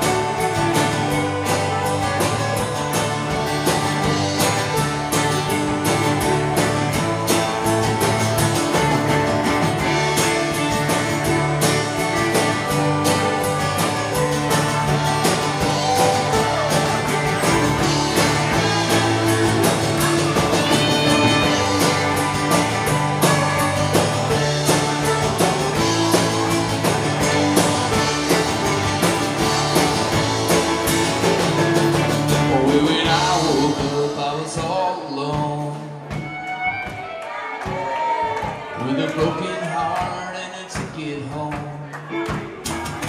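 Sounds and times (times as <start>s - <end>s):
fiddle: 0.0s - 33.7s
folk-rock band playing: 0.0s - 43.0s.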